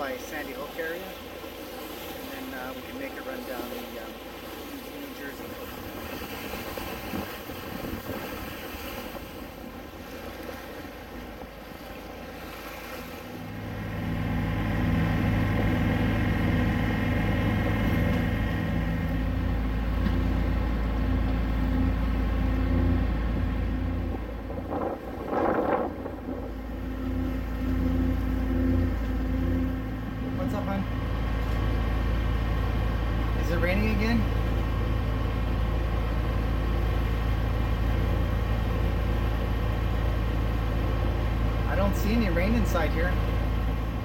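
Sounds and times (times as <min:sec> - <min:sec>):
boat engine drone: 0:00.0 - 0:44.0
wind rumbling on microphone: 0:05.4 - 0:31.9.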